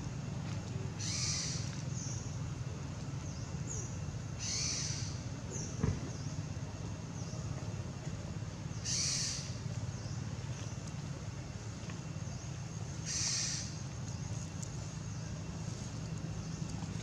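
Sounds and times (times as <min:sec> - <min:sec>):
steady low hum: 0:00.0 - 0:17.0
high-pitched hissy chirp: 0:00.9 - 0:07.6, 0:08.4 - 0:17.0.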